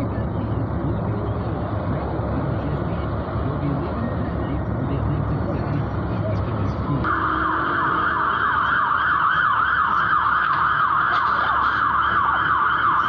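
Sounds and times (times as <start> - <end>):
street traffic noise: 0.0 - 13.0
fire engine siren yelping: 7.0 - 13.0.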